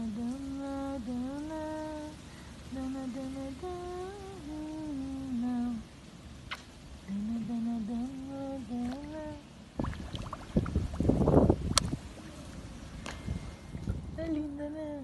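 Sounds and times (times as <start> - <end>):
woman humming: 7.1 - 9.4.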